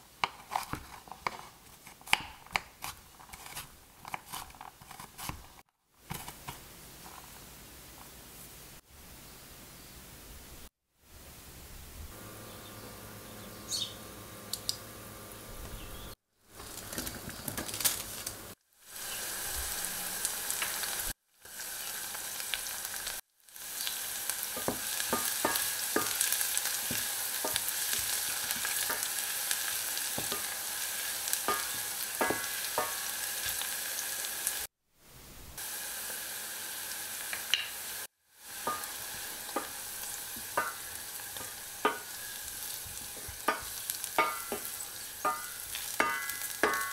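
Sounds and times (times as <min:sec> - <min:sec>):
food sizzling in oil: 0:16.6 - 0:34.7, 0:35.6 - 0:46.9.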